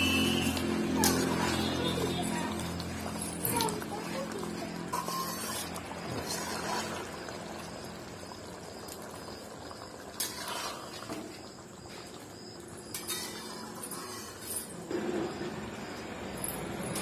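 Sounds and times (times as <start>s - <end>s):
curry simmering: 0.0s - 16.3s
spatula scraping metal pan: 4.6s - 7.2s, 10.2s - 11.0s, 12.9s - 14.8s.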